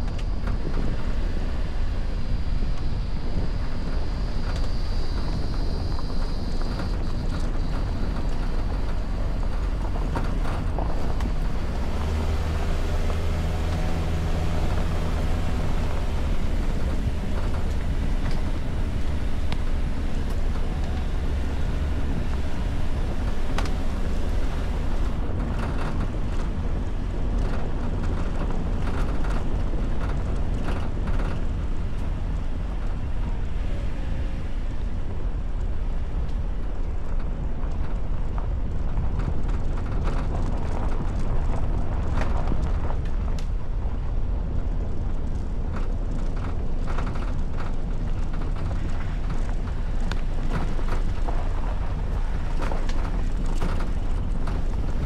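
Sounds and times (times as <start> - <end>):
car engine rumbling: 0.0 - 55.0
wind buffeting microphone: 0.0 - 55.0
knocks and rattles from bumps: 6.8 - 33.0.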